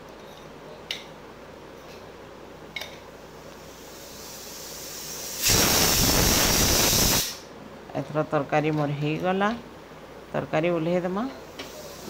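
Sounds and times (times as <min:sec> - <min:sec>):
low steady hiss: 0:00.0 - 0:12.0
steam bursting from pressure cooker: 0:03.7 - 0:07.4, 0:11.6 - 0:12.0.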